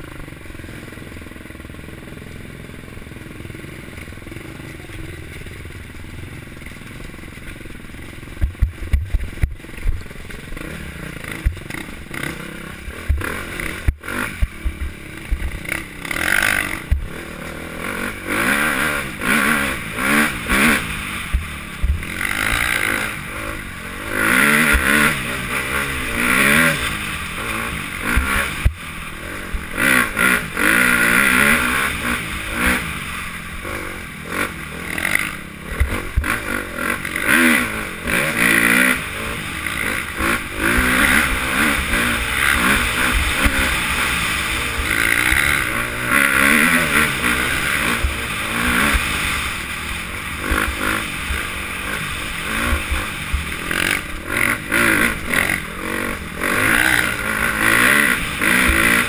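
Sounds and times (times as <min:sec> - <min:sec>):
dirt bike engine revving: 0:00.0 - 0:59.0
bike knocks and rattles: 0:08.3 - 0:10.6.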